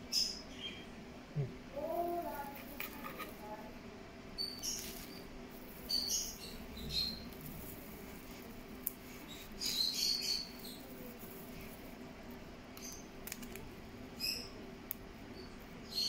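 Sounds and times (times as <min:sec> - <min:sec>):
plastic bag rustling and crackling: 0:04.6 - 0:12.4.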